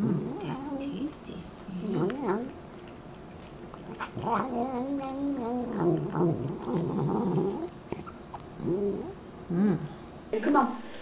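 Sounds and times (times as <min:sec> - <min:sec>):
cat meowing while eating: 0:04.2 - 0:06.8.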